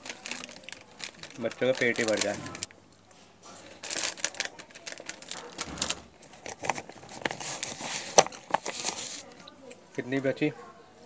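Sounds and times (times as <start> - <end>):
snack packet crinkling: 0.0 - 2.8, 3.5 - 9.5.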